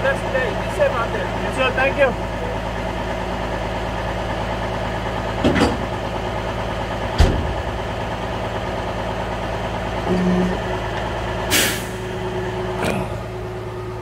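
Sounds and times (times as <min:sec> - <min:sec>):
truck engine idling: 0:00.0 - 0:14.0
short low tone: 0:10.1 - 0:10.7, 0:12.7 - 0:13.5.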